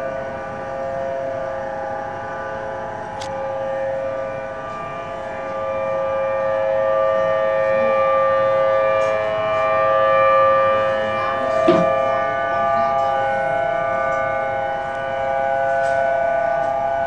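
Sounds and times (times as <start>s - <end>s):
warning siren wailing: 0.0s - 17.0s.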